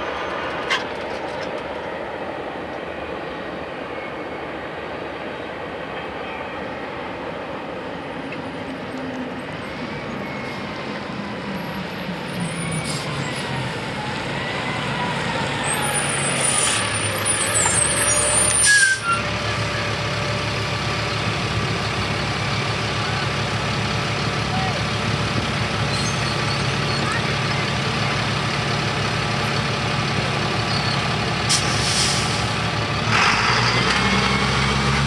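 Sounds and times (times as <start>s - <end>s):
diesel bus engine running: 7.4s - 35.0s
air-brake hisses: 31.5s - 32.5s.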